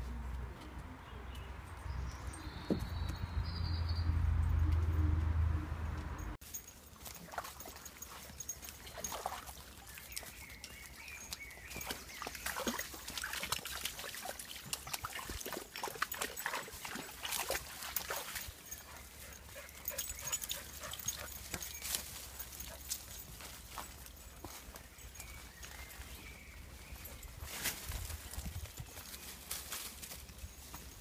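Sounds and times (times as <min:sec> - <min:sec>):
splashing in a muddy puddle: 0:06.4 - 0:23.3
rustling in leaf litter: 0:27.3 - 0:31.0.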